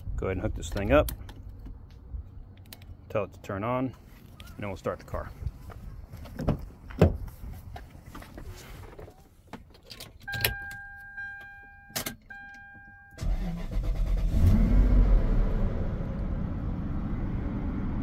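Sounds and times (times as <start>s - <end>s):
car engine starting and idling: 12.1s - 18.0s.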